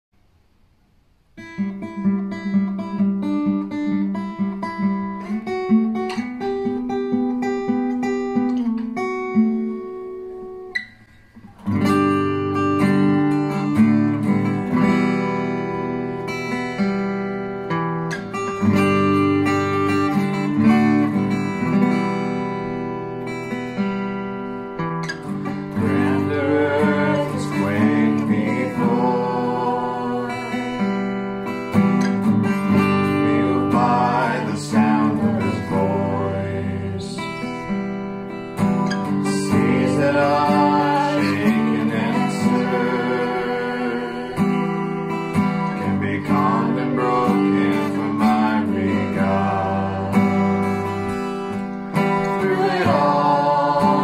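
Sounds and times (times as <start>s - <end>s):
acoustic guitar strumming: 1.4s - 54.0s
man singing: 25.7s - 31.0s, 32.7s - 37.6s, 39.2s - 44.7s, 45.8s - 50.8s, 52.1s - 54.0s.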